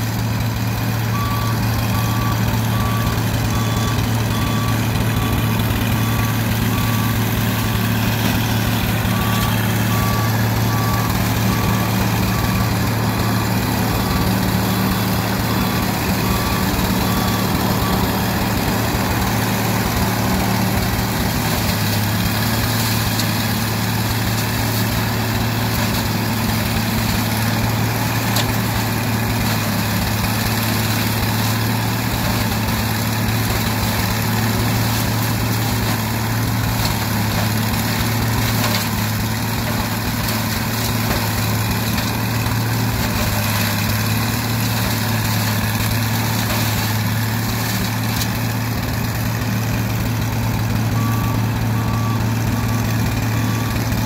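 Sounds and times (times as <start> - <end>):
engine running steadily: 0.0 - 54.0
reversing beeper beeping: 1.0 - 29.4, 50.9 - 54.0.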